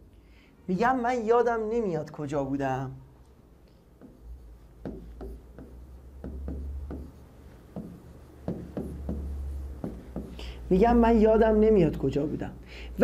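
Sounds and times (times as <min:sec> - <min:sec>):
low steady hum: 0:00.0 - 0:13.0
pen tapping on whiteboard screen: 0:03.9 - 0:10.5.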